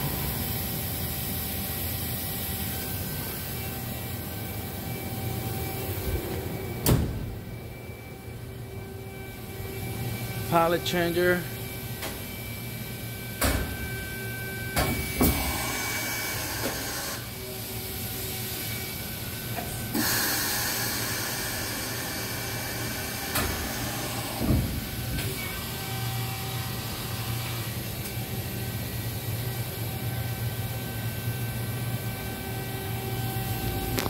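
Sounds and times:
pneumatic hiss: 19.8 - 21.6.

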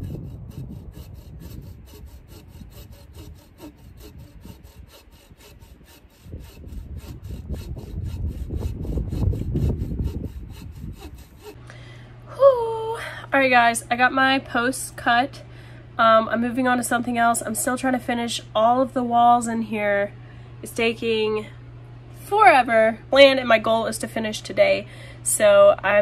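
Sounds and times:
hand saw cutting wood: 0.0 - 11.6.

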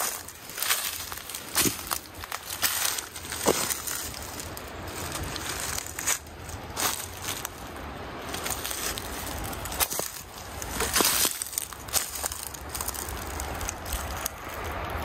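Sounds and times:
footsteps crunching on dry leaves: 0.0 - 15.0
sticks snapping: 8.5 - 15.0.

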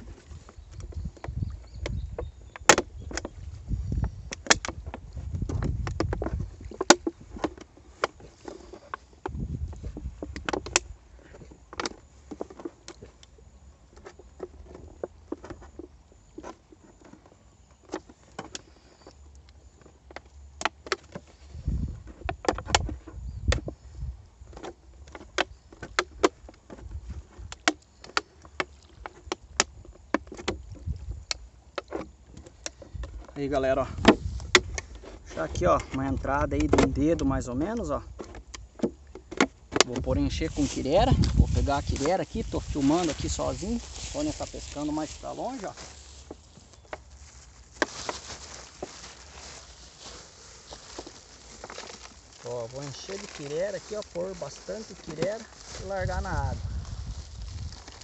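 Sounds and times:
plastic bottle crackling: 38.3 - 58.0.

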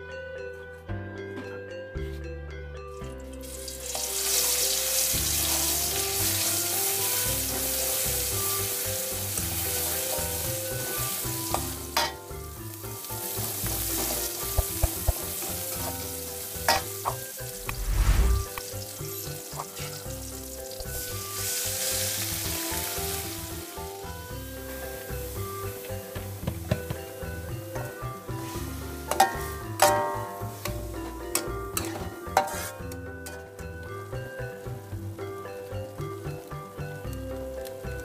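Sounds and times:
garlic sizzling in hot oil: 3.4 - 38.0
utensils striking a wok: 8.7 - 12.3, 13.2 - 17.3, 29.0 - 33.8.

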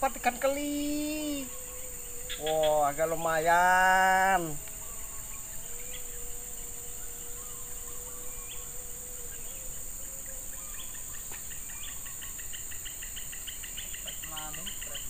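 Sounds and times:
bird chirps: 0.0 - 15.0
high-pitched insect drone: 0.0 - 15.0.

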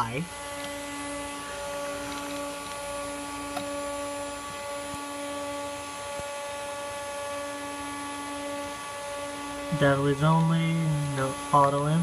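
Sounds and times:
computer equipment electrical hum: 0.0 - 12.0.

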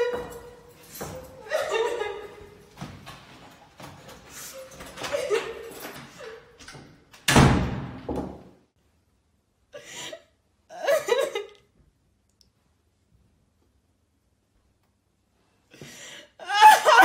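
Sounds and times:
woman sobbing: 1.3 - 2.4, 9.8 - 11.6, 16.2 - 17.0
door slamming shut: 7.2 - 8.5.

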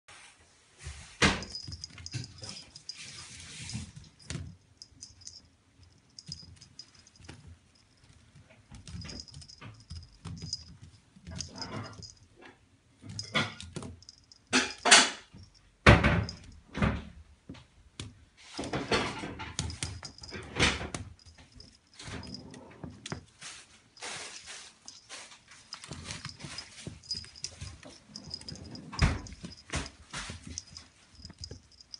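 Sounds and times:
kitten paws scuffling: 0.1 - 12.4, 19.5 - 31.9
collar bell jingling: 1.2 - 12.3, 13.0 - 16.7, 19.6 - 31.9.

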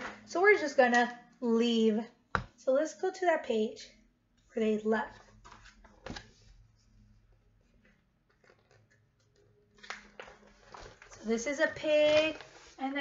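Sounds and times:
paper pages rustling: 5.1 - 6.9, 7.7 - 13.0.

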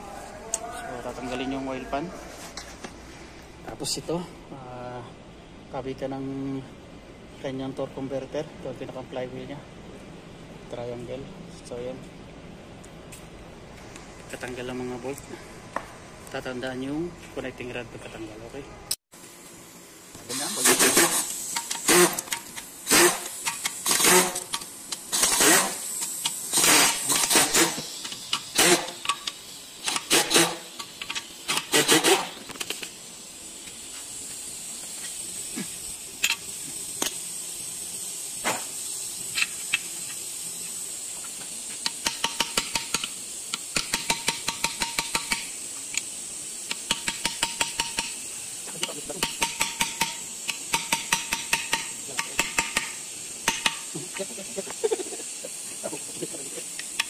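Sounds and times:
impact wrench bursts: 20.2 - 32.9, 41.7 - 55.0.

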